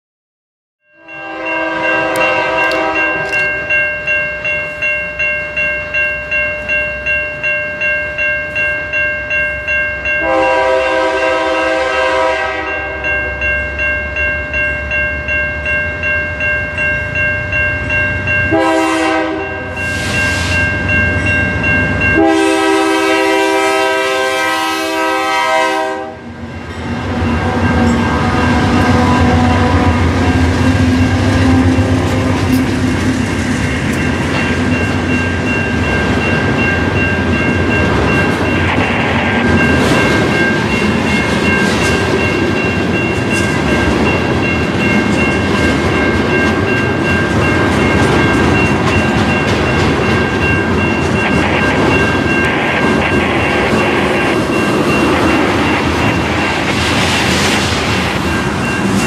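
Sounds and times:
crossing bell ringing: 0:00.8 - 0:59.0
locomotive air horn: 0:01.0 - 0:03.3, 0:10.2 - 0:12.9, 0:18.5 - 0:20.5, 0:22.2 - 0:26.3
train wheels rolling: 0:26.4 - 0:59.0.

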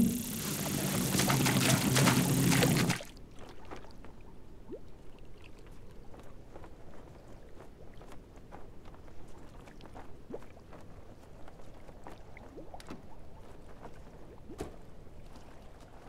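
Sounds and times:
water plops and drips: 0:00.0 - 0:03.9
water lapping against hull: 0:00.0 - 0:04.1.

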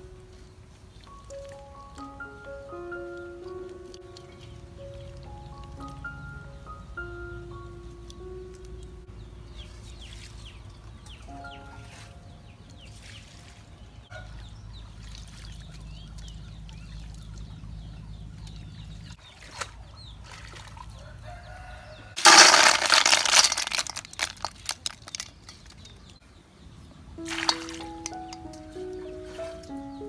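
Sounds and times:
water dripping and trickling: 0:00.3 - 0:06.4, 0:07.8 - 0:21.2, 0:27.2 - 0:29.9
faint chicken calls: 0:20.7 - 0:22.2
water splashing into steel bowl: 0:27.2 - 0:28.5.

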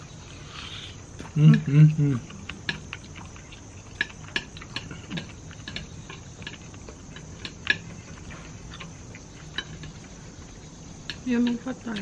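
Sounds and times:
chewing: 0:00.0 - 0:12.0
high insect trill: 0:00.0 - 0:12.0
chopsticks clicking against plates: 0:03.9 - 0:07.9, 0:11.0 - 0:12.0.

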